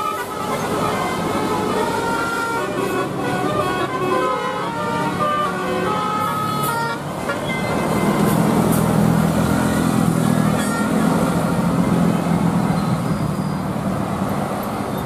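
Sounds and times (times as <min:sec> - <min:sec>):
bus musical horn melody: 0:00.0 - 0:08.8, 0:10.5 - 0:11.3
bus engine passing: 0:00.0 - 0:15.0.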